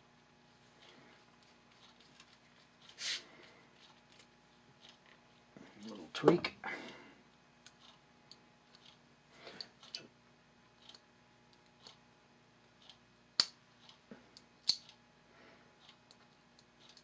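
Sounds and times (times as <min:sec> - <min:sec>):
metallic clicks and taps: 0:14.4 - 0:15.0.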